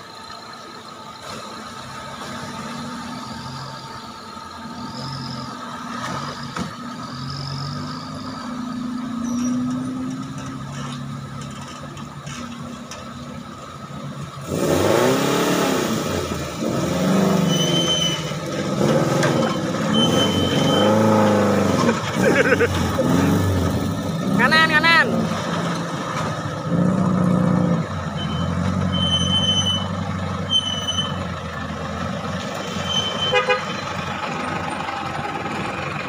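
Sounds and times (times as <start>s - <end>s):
off-road vehicle engines revving: 0.0s - 36.0s.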